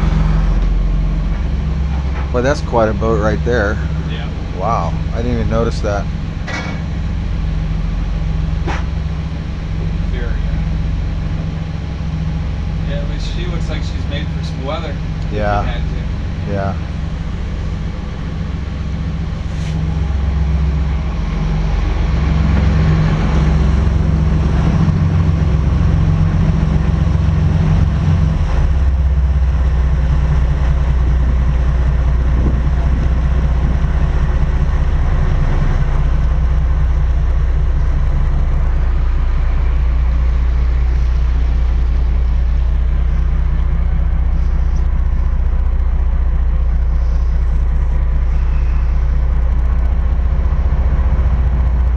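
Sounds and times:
marine diesel engines droning: 0.0 - 51.9.

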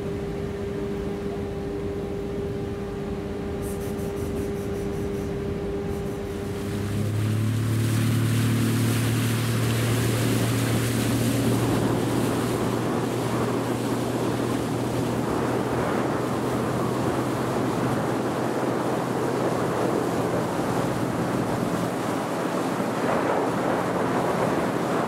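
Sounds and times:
mechanical hum: 0.0 - 25.0
motorboat engine droning: 0.0 - 25.0
wind: 0.0 - 25.0
water rushing: 5.8 - 25.0.

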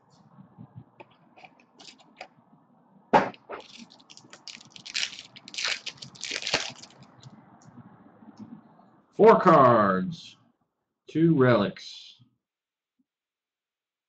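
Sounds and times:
foil pack crinkling and tearing: 3.6 - 7.1.

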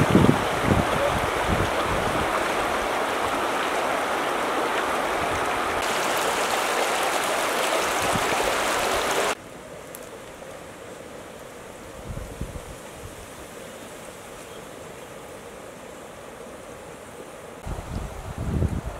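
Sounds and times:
river flowing over stones: 0.0 - 9.4
faint hiss: 5.8 - 18.9.

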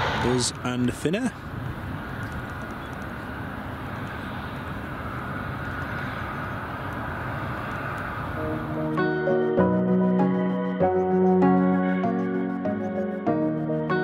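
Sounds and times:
aircraft engine rumble: 0.0 - 8.8
music: 8.4 - 14.0.

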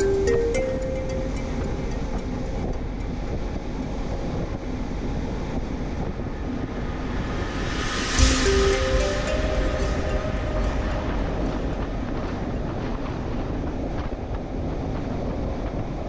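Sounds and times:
background music melody: 0.0 - 4.1, 6.2 - 13.4
wind noise on microphone: 0.6 - 16.0.

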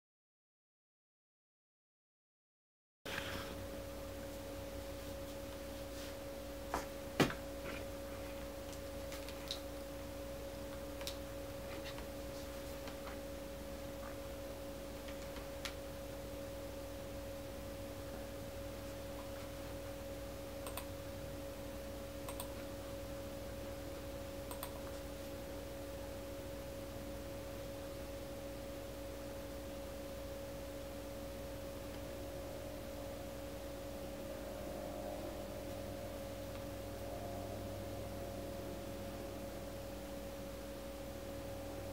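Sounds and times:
steady two-pitch hum: 3.1 - 41.9
short light clicks: 22.3 - 22.5.

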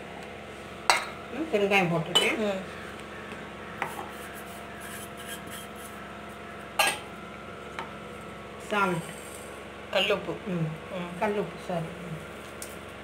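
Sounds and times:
faint rubbing in bowl: 3.9 - 6.0.

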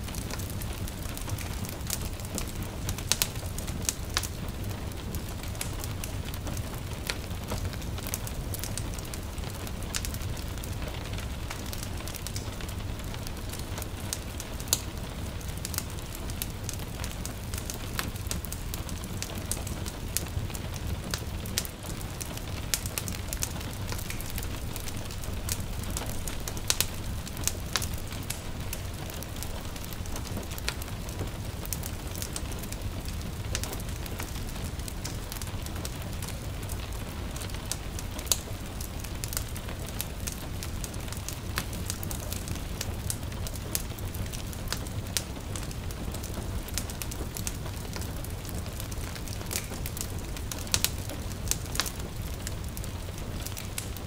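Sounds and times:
light rain hiss: 0.0 - 54.0
wood fire crackling and popping: 0.0 - 54.0.

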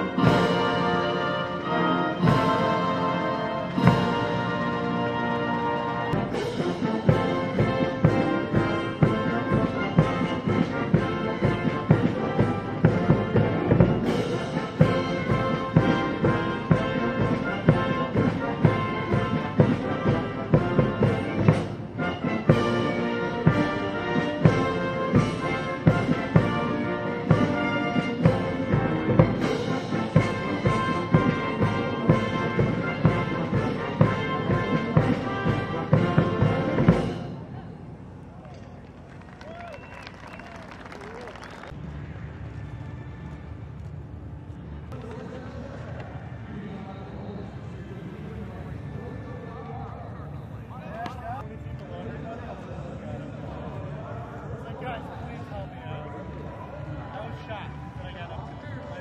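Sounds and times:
military band brass: 0.0 - 37.6.

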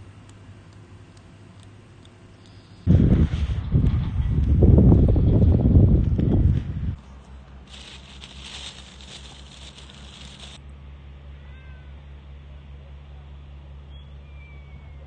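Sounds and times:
steady low hum: 0.0 - 11.2
hiss-like rustle: 7.7 - 10.6
cat meowing faintly: 11.2 - 12.0.

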